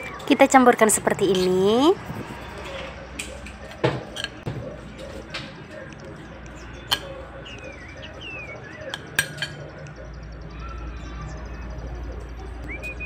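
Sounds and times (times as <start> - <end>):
birds chirping: 0.0 - 13.0
spoon clinking against stone: 4.0 - 4.4, 6.8 - 7.3, 8.9 - 9.6.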